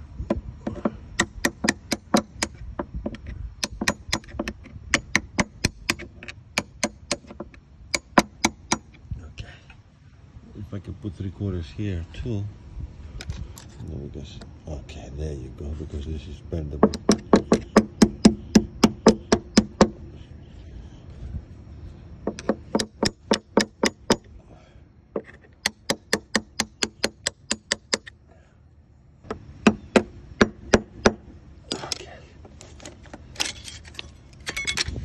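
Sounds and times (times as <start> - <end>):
small hammer tapping on metal: 0.6 - 8.9, 16.8 - 20.0, 22.3 - 24.3.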